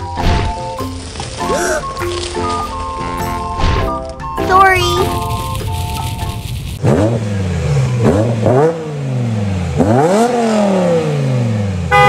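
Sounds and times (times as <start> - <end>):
car engine revving: 5.2 - 12.0.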